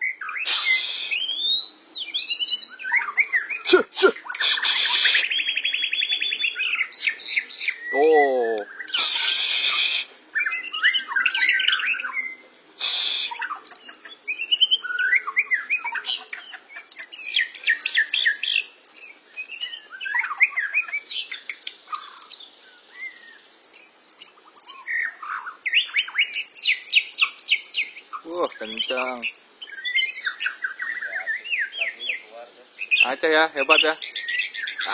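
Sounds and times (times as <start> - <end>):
birds singing: 0.0 - 34.9
loud hissing burst: 0.5 - 1.2, 3.7 - 5.3, 8.9 - 10.2, 12.8 - 13.4.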